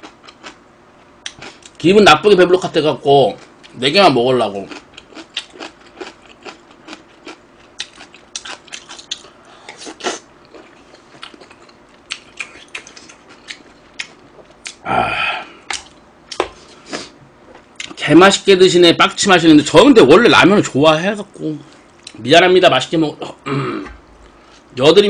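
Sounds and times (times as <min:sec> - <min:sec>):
mouth chewing with wet smacks: 0:07.8 - 0:14.8.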